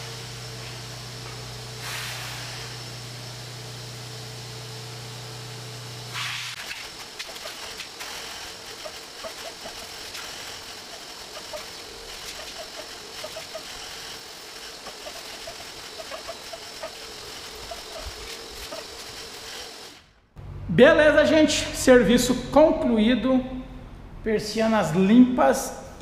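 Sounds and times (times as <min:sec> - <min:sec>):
wet vacuum motor running: 0:00.0 - 0:20.2
rushing air suction: 0:01.8 - 0:02.9
vacuum wand slurping water: 0:06.6 - 0:19.9.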